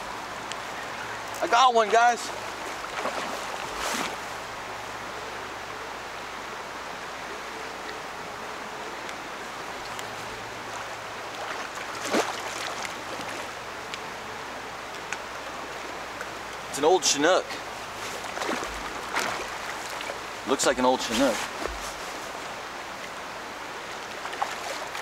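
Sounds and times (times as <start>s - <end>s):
river water rushing: 0.0s - 25.0s.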